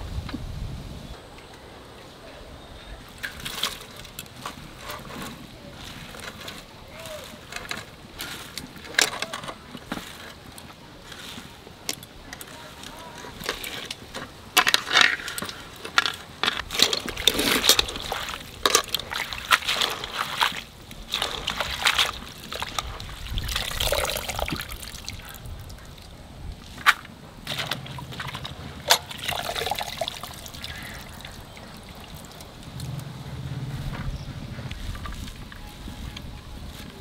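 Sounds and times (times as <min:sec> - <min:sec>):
hands swishing cabbage in water: 0:16.7 - 0:25.4
water dribbling into pot: 0:28.9 - 0:32.5.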